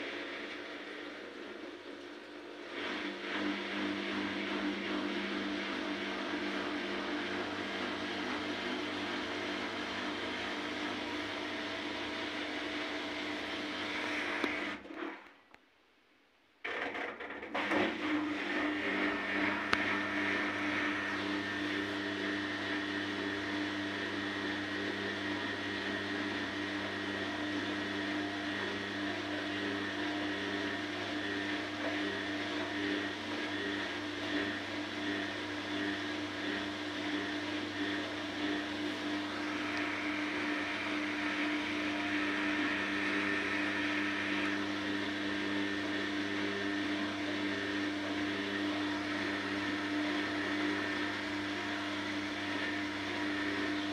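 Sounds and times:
washing machine spinning: 0.0s - 14.9s, 17.2s - 53.9s.

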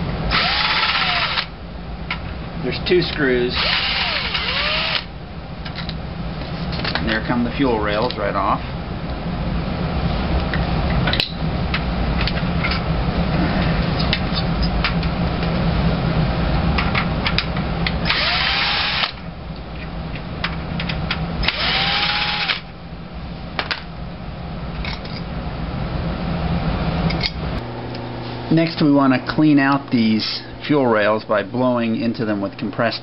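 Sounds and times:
cordless drill spinning: 0.3s - 1.5s, 3.6s - 5.1s, 18.1s - 19.2s, 21.4s - 22.7s.

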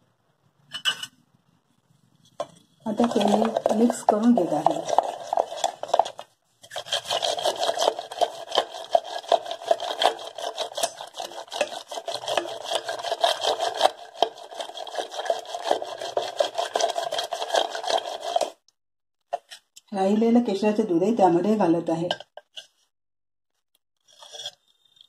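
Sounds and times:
wooden spatula scraping steel bowl: 1.7s - 18.6s, 24.0s - 25.0s.

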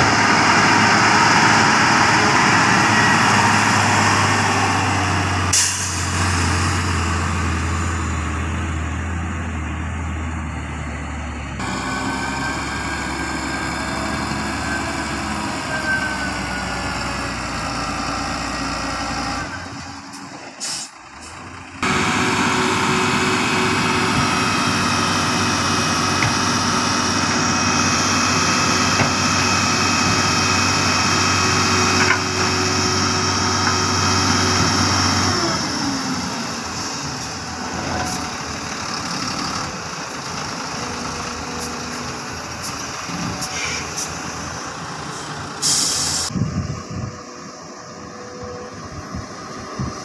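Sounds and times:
dump truck diesel engine revving: 0.0s - 50.0s
air hiss: 45.6s - 46.3s.

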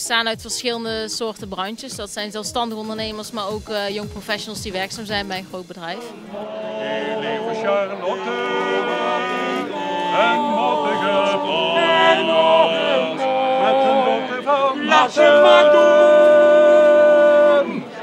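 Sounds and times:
male vocal quartet singing: 6.2s - 18.0s.

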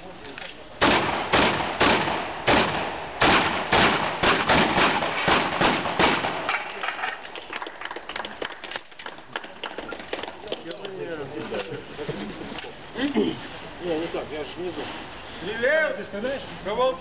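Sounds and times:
shotgun shots: 0.8s - 7.1s.

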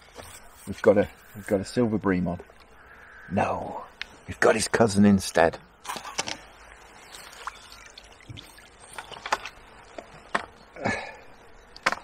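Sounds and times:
water splashes: 5.8s - 10.3s.

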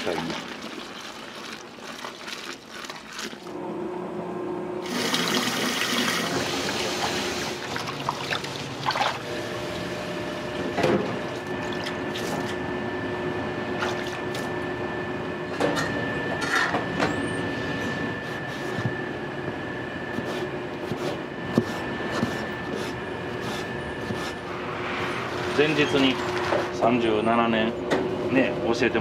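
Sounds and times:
water running and splashing: 0.0s - 3.5s.

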